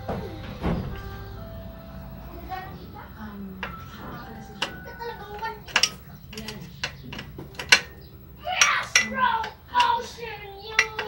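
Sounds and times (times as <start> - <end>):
tool clicking on bike metal: 3.6 - 11.0.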